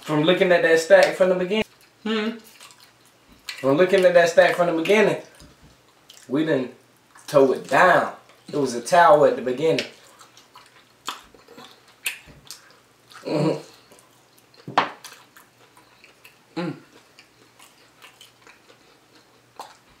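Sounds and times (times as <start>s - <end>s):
person humming mm: 2.0s - 2.4s, 13.2s - 13.8s, 16.6s - 16.9s.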